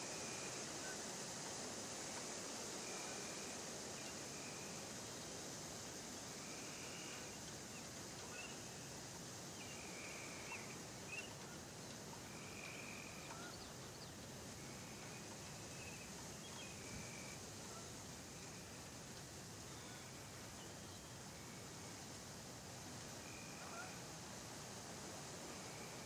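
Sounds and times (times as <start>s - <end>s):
outdoor background hiss: 0.0s - 26.0s.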